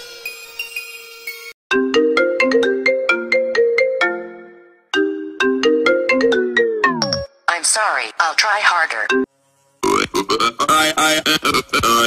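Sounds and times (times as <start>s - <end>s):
phone ringtone marimba melody: 1.7s - 7.3s
music track: 1.7s - 9.3s.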